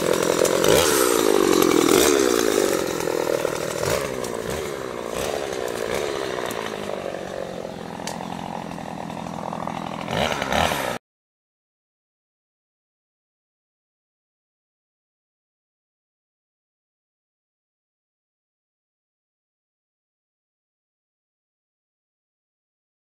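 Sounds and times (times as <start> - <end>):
chainsaw revving: 0.0 - 11.0.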